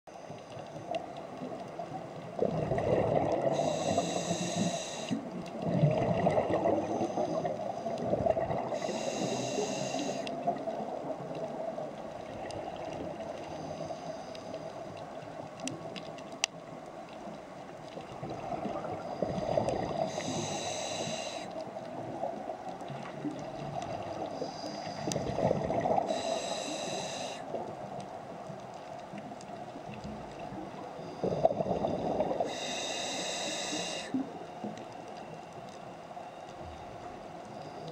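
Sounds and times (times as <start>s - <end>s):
bubbling exhalations: 2.4s - 3.6s, 5.6s - 6.9s
regulator inhalation hiss: 3.5s - 5.3s, 8.7s - 10.4s, 19.5s - 21.6s, 26.1s - 27.6s, 32.4s - 34.2s.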